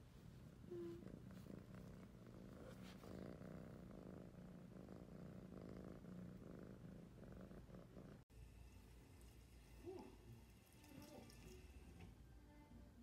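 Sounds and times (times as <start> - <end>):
kitten purring: 0.0 - 8.2.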